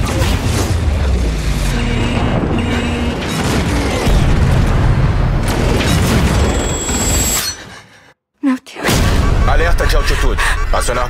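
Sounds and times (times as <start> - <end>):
booms and explosions: 0.0 - 7.3, 8.8 - 10.0.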